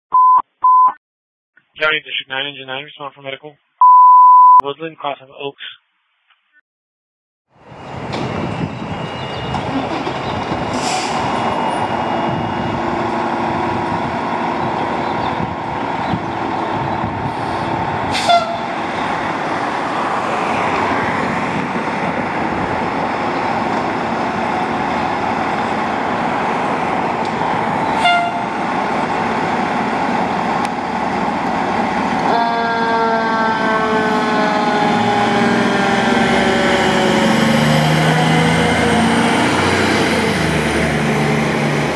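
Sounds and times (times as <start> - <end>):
fire engine running: 7.5 - 41.9
short horn blasts: 18.2 - 18.8, 28.0 - 28.5
siren with falling tones: 32.3 - 39.8.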